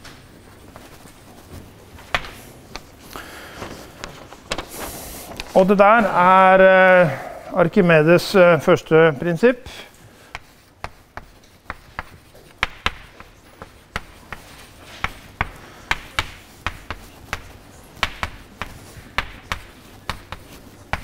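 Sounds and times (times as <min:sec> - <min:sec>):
chalk tapping on blackboard: 0:10.3 - 0:21.0.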